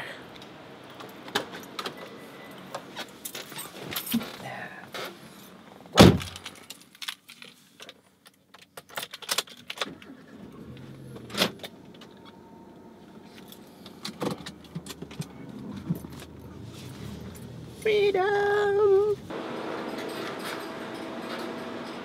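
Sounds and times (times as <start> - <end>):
clicks and rustles in car: 0.9 - 12.4, 13.2 - 19.2
car door slamming: 6.0 - 6.4.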